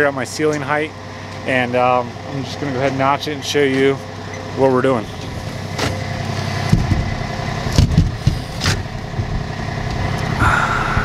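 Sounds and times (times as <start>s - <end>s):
engine running: 0.0s - 11.0s.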